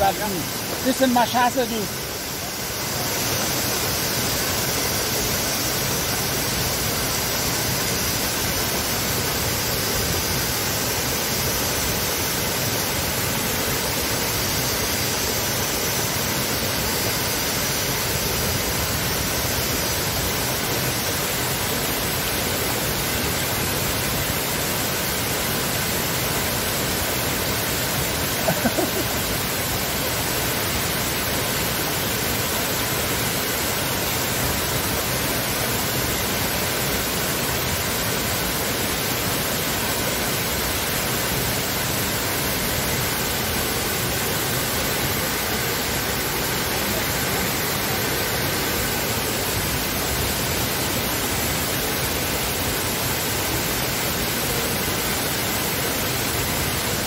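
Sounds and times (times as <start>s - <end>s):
waterfall roaring: 0.0s - 57.0s.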